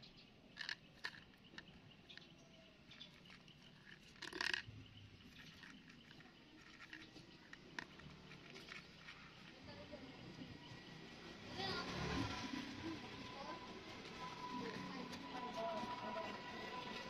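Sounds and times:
cat crunching dry kibble: 0.6s - 2.2s, 3.0s - 9.6s.

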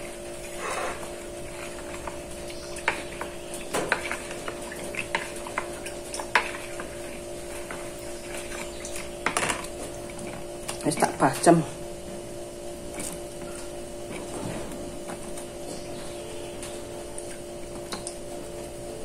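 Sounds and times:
spoon stirring batter: 0.0s - 11.4s
steady hum: 0.0s - 19.0s.

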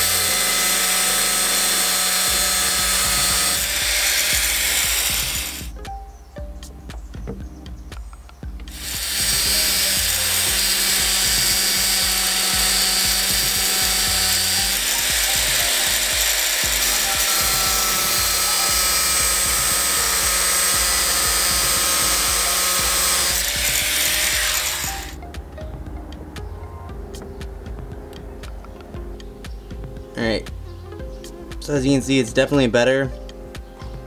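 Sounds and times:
angle grinder cutting metal: 0.0s - 5.7s, 8.7s - 25.2s.

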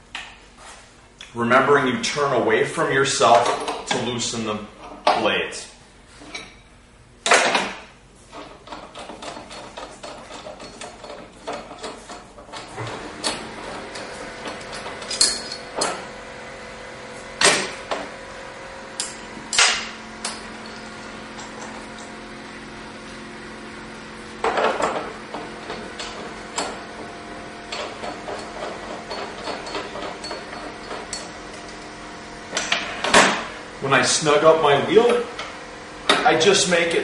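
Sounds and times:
wrenches knocking on metal: 27.7s - 31.6s.

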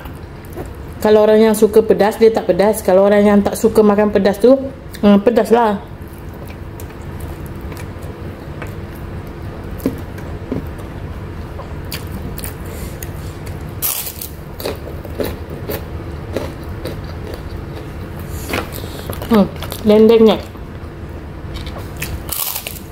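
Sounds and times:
steady low hum: 0.0s - 22.9s
chewing food: 14.5s - 18.2s.

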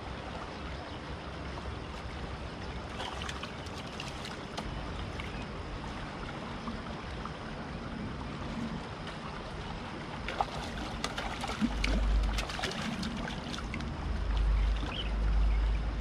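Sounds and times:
flowing river water: 0.0s - 16.0s
fish splashing at water surface: 10.2s - 15.0s.

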